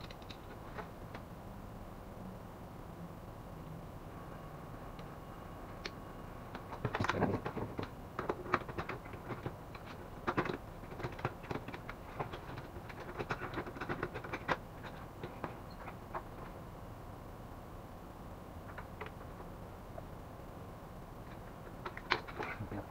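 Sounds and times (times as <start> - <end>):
printer parts clicking and rattling: 6.5 - 16.6, 18.7 - 19.5, 21.3 - 22.7.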